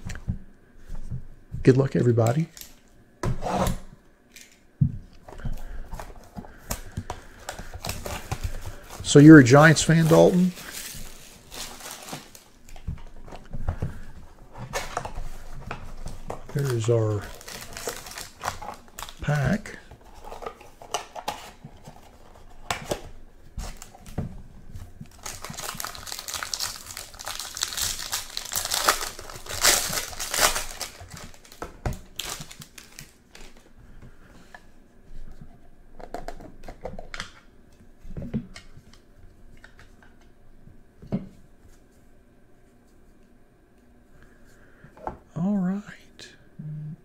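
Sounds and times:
wrapper tearing and crinkling: 6.8s - 12.8s, 16.0s - 22.1s, 25.1s - 33.6s
cards clicking and rustling: 25.1s - 33.6s.

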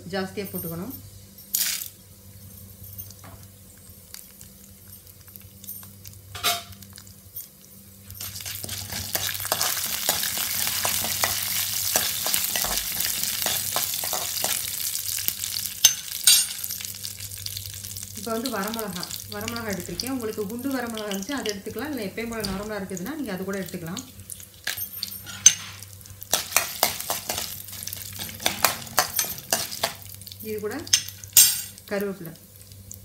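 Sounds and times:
grains sizzling in oil: 0.3s - 33.0s
spoon stirring grains: 8.2s - 15.0s, 25.0s - 30.1s.

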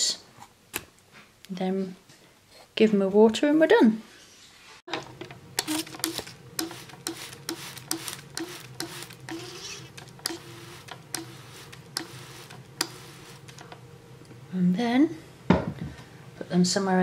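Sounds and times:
compost being watered: 5.6s - 13.7s.

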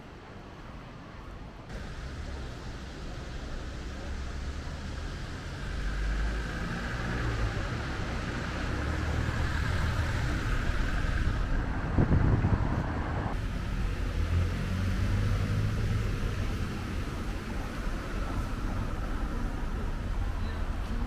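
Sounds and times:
road traffic hum: 0.0s - 21.0s
vehicle passing: 3.9s - 20.4s.

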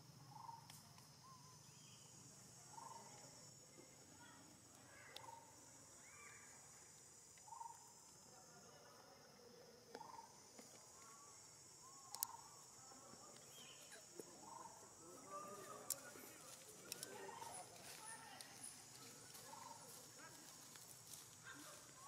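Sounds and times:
high insect drone: 0.0s - 22.0s
sharp clicks: 12.1s - 12.4s.

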